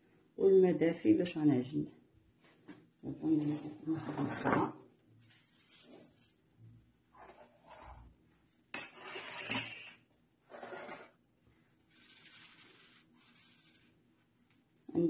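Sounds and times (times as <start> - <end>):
dish scraping across a counter: 3.9 - 4.8, 7.1 - 8.1, 8.8 - 11.2.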